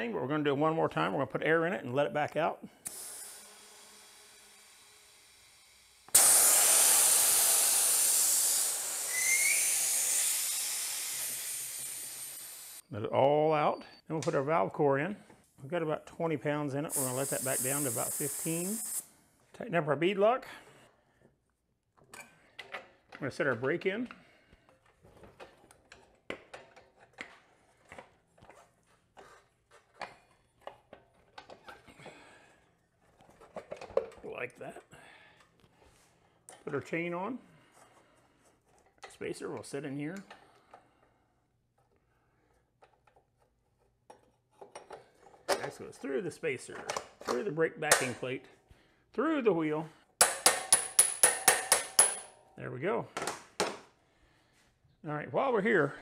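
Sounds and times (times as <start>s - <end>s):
compressed air hissing: 2.8s - 12.8s, 16.9s - 19.1s.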